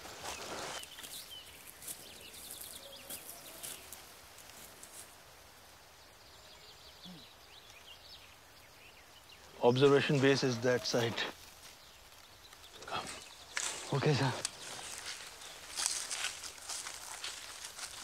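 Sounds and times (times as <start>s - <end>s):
footsteps crunching dry leaves: 0.0s - 5.2s, 13.0s - 18.0s
forest ambience: 0.0s - 18.0s
faint high chirping: 0.8s - 4.0s, 6.2s - 11.1s.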